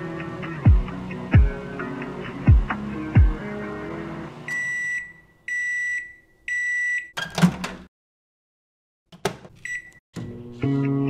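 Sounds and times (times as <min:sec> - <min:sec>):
microwave high beeps: 0:04.4 - 0:07.2, 0:09.6 - 0:10.0.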